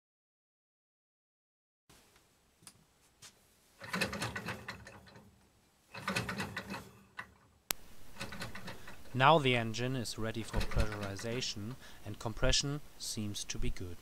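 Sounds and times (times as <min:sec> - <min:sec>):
engine mechanical clicking and whirring: 0:08.2 - 0:09.1, 0:10.4 - 0:11.4.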